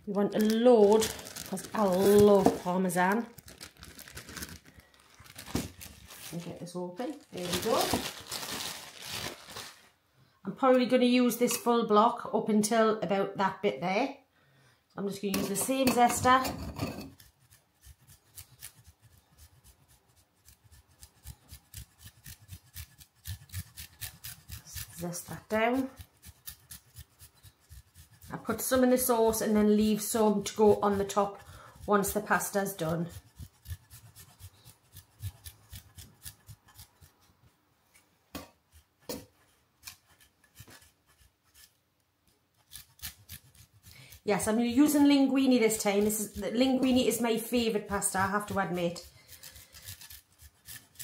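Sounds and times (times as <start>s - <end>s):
cheese grating on a zester: 15.5s - 37.3s, 38.7s - 41.8s, 42.5s - 51.0s.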